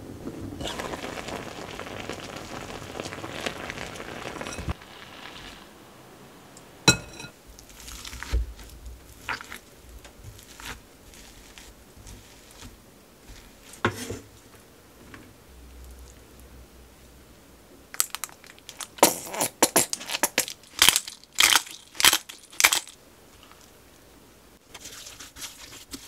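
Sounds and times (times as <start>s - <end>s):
hot pot hissing and sizzling: 0.0s - 14.5s.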